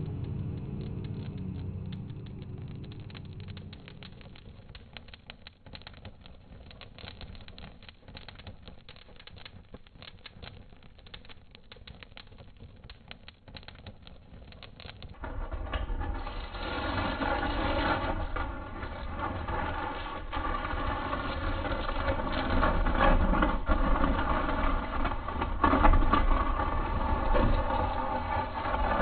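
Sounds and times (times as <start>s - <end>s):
mechanical rumble with hum: 0.0s - 4.8s
wood fire crackling: 0.0s - 29.0s.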